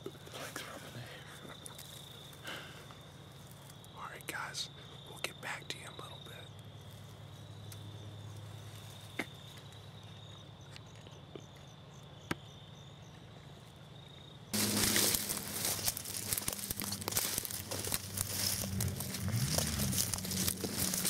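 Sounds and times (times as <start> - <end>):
footsteps through dry vegetation: 14.6 - 21.0.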